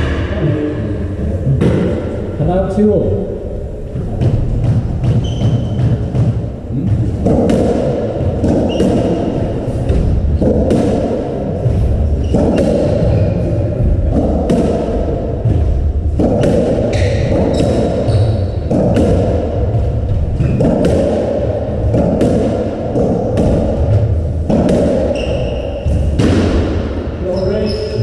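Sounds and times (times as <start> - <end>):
ball thudding off rackets and walls: 4.2 - 26.9
short high squeaks: 25.1 - 25.8.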